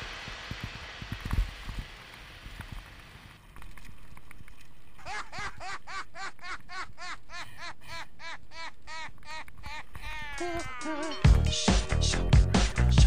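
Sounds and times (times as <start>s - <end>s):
music with repeating pitched figure: 10.8s - 13.0s.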